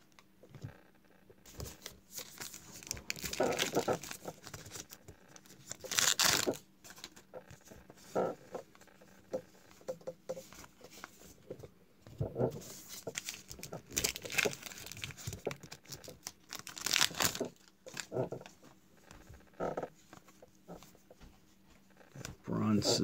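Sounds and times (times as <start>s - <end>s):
plastic wrapper crinkling and tearing: 1.5s - 7.2s, 12.8s - 18.6s.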